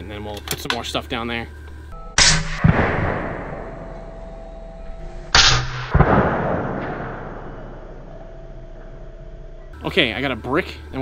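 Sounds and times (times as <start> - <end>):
suppressed rifle shots: 2.2 - 3.7, 5.3 - 7.7
bullet striking target: 2.2 - 3.8, 5.3 - 7.8
long echo: 2.2 - 9.7.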